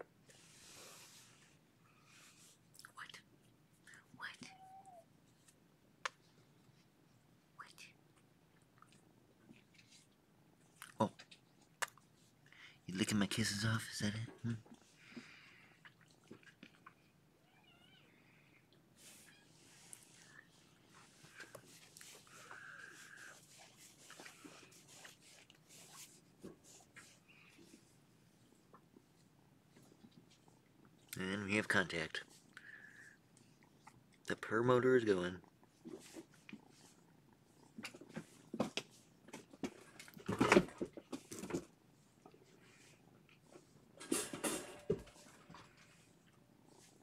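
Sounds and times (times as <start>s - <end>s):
cat purring: 35.4s - 39.0s.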